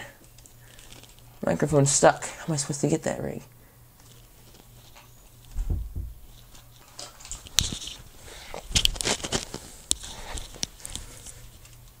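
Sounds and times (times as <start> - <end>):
microphone handling noise: 5.5 - 6.5.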